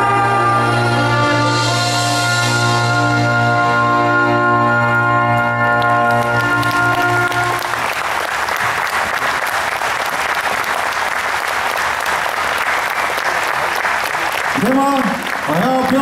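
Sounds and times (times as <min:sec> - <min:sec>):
music chord: 0:00.0 - 0:07.9
audience applauding loudly: 0:05.6 - 0:16.0.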